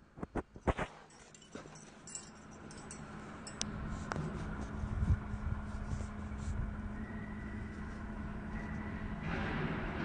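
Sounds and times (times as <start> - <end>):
factory machinery rumble: 1.7 - 10.0.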